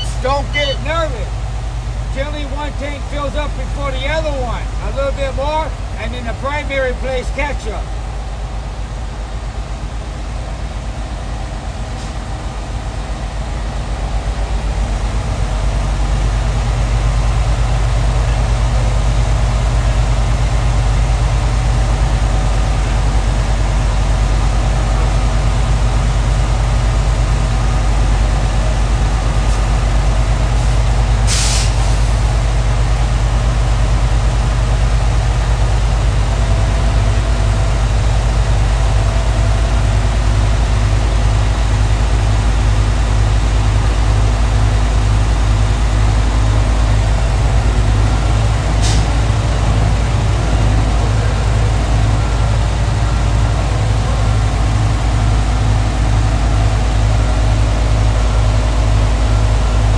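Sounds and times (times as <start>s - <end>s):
truck diesel engine revving: 0.0s - 59.9s
high air hiss: 30.6s - 32.2s.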